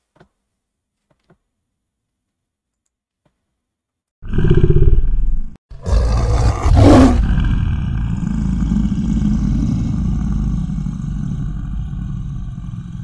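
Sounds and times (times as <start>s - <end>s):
deep low rumble: 7.2s - 13.0s.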